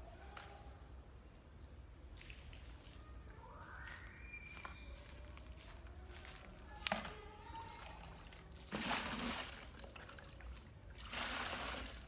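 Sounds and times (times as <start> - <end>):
water pouring and splashing: 6.8 - 12.0.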